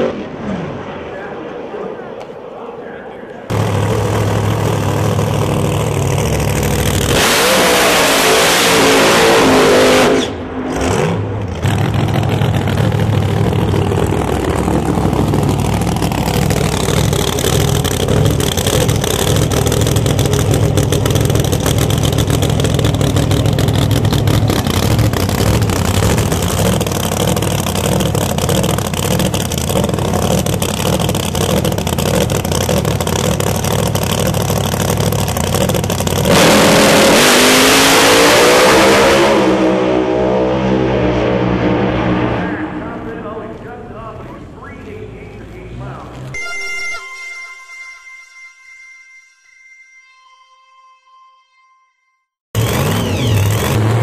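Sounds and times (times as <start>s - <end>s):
drag racing engines revving: 3.4s - 46.3s, 52.6s - 54.0s
full-throttle engine burst: 3.5s - 43.4s, 52.6s - 54.0s.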